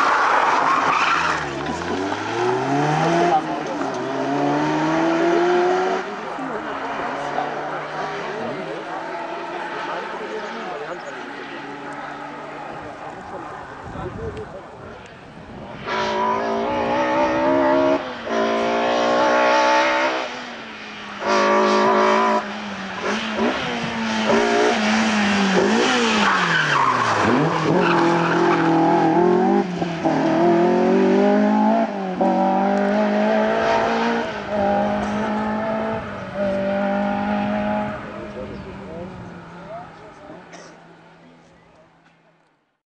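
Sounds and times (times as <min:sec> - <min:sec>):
rally car engines revving: 0:00.0 - 0:42.2.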